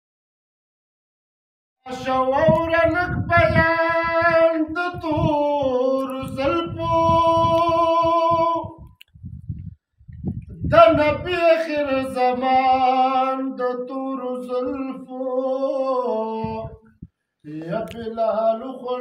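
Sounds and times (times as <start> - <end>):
man singing solo: 1.9 - 8.8.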